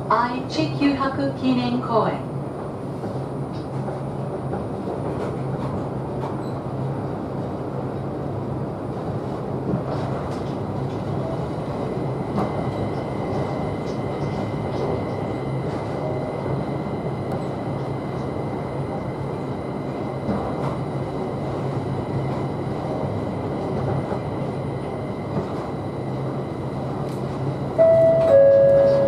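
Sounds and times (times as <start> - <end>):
train cabin rushing hum: 0.0 - 29.0
two-note falling chime: 27.8 - 29.0.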